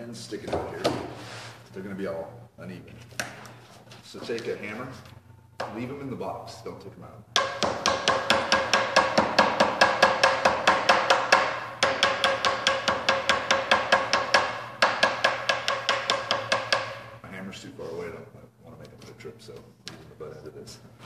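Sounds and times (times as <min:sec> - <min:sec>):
rapid hammer blows on panels: 0:07.4 - 0:17.2.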